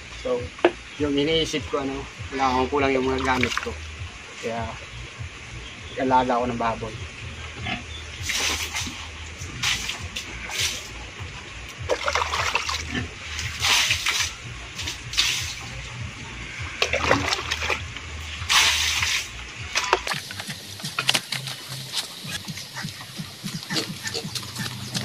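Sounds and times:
water splashing onto concrete: 3.0 - 3.8, 8.2 - 11.0, 11.8 - 15.8, 16.7 - 22.4.

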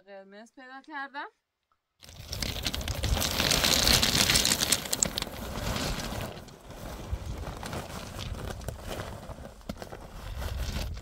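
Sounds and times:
stones clicking and knocking: 2.0 - 6.6, 8.0 - 8.8
cloth rustling: 2.0 - 11.0.

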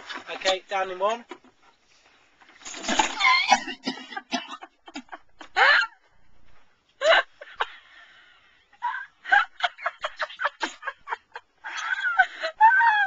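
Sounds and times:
man crying out and spluttering: 3.0 - 3.9.

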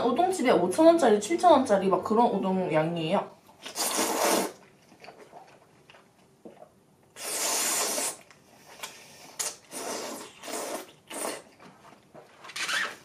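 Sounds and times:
person slurping noodles: 3.6 - 5.5, 7.2 - 11.6.

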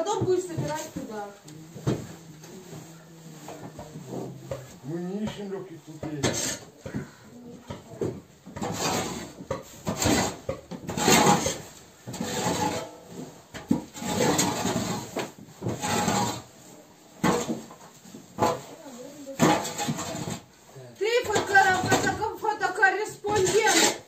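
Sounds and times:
shovel scraping on wooden floor: 6.2 - 20.5, 21.2 - 24.0.

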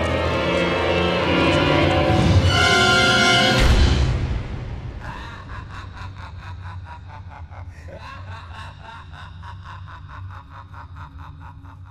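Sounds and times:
man laughing drawn-out: 5.0 - 11.9.

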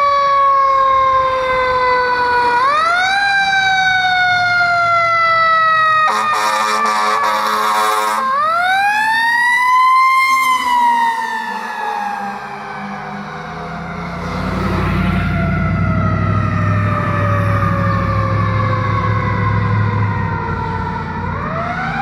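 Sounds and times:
fire engine siren wailing: 0.0 - 22.0
air horn burst: 6.1 - 8.2.

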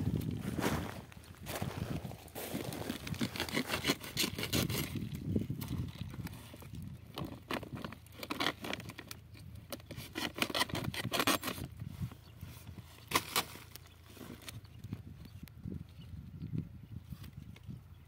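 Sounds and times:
plastic sack rustling: 0.2 - 4.1
scraping: 0.4 - 11.7.

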